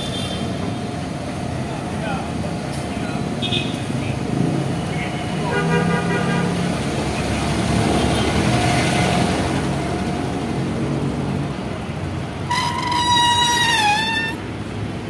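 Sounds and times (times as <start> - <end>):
street traffic: 0.0 - 15.0
vehicle horn blast: 5.4 - 6.5, 12.5 - 14.4
bus engine running: 6.6 - 15.0.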